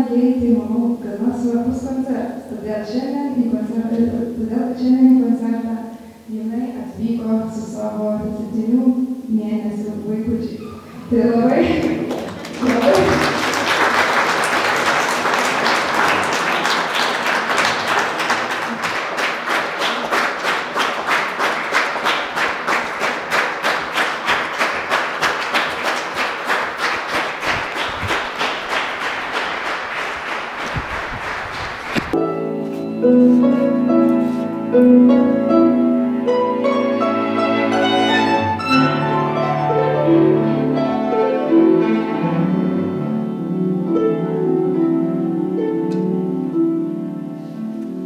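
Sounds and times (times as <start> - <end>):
audience rhythmic clapping: 11.5 - 32.2
string quartet playing classical music: 32.1 - 48.0
harp: 32.2 - 48.0.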